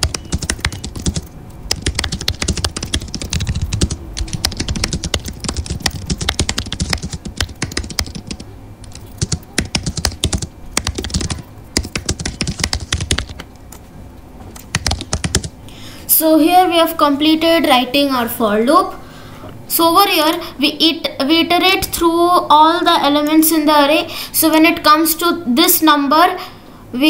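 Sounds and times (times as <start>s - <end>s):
typing on computer keyboard: 0.0s - 13.5s, 14.6s - 15.6s.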